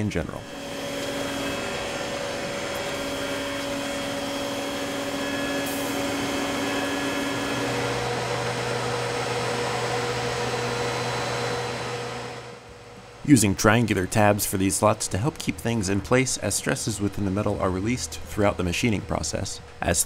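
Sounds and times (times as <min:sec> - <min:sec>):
milling machine cutting metal: 0:00.0 - 0:12.4
low hum: 0:00.0 - 0:19.9
coolant hiss: 0:00.4 - 0:09.6.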